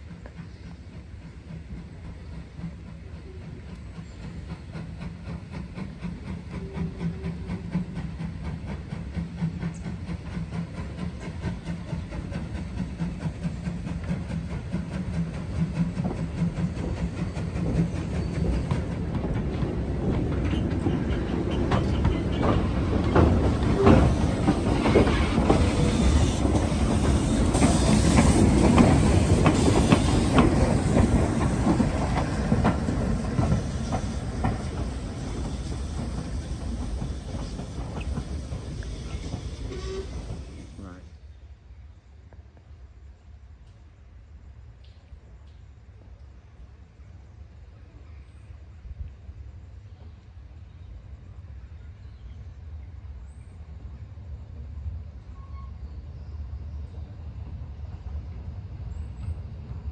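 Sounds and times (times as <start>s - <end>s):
steam hissing: 0.0s - 41.2s
steam locomotive running: 0.0s - 41.8s
clanking over rails: 7.1s - 40.8s.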